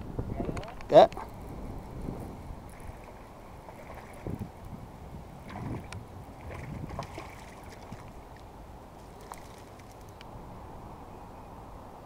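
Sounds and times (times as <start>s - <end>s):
wind buffeting microphone: 0.0s - 12.0s
small waves lapping: 2.4s - 10.2s.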